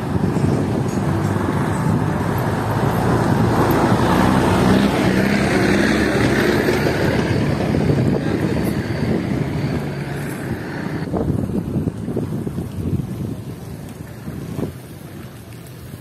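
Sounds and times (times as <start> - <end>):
vehicle engine humming: 0.0 - 11.1
traffic noise: 0.0 - 16.0
wind buffeting microphone: 0.0 - 16.0.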